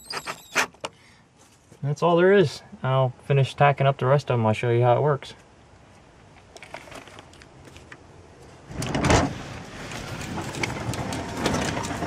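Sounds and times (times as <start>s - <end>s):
garage door rumbling: 8.7s - 12.0s.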